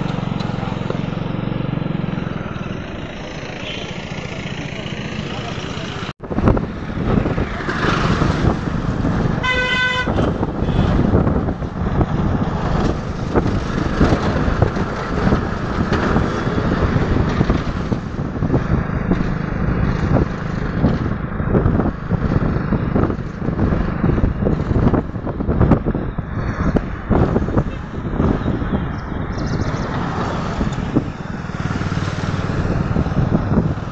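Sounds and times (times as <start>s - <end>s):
road and wind noise: 0.0s - 33.9s
vehicle horn honking: 3.6s - 4.1s, 9.4s - 11.0s.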